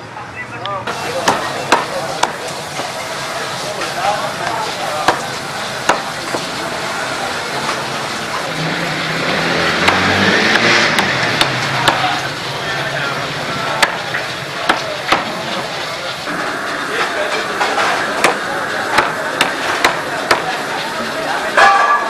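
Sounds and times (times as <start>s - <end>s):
street noise: 0.0s - 22.0s
cleaver chopping on wooden block: 9.8s - 12.0s.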